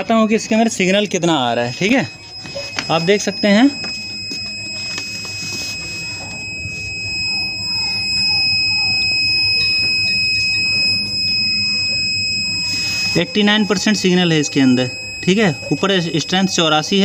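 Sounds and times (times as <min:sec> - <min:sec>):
high-pitched buzzer tone: 0:00.6 - 0:17.0.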